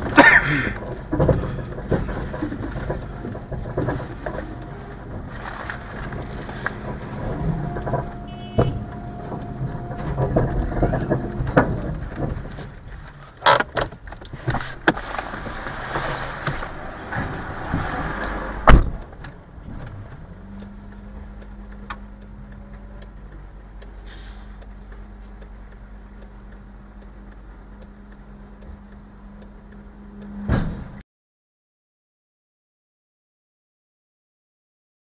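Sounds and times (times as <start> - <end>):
car interior knocks and rattles: 0.0 - 18.0, 18.6 - 19.9
low engine hum: 0.0 - 31.0
heavy thump: 18.6 - 19.8, 30.4 - 31.0.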